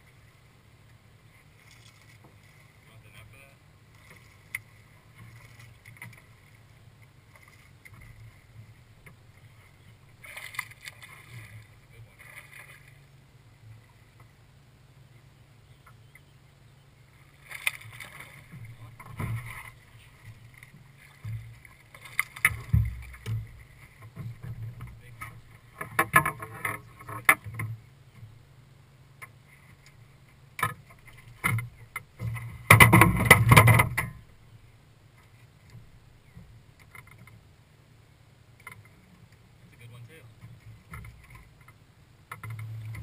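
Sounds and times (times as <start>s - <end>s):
low steady hum: 0.0s - 43.0s
knocks and rattles on boat deck: 18.4s - 21.7s, 22.4s - 28.3s, 30.6s - 34.3s, 40.3s - 43.0s.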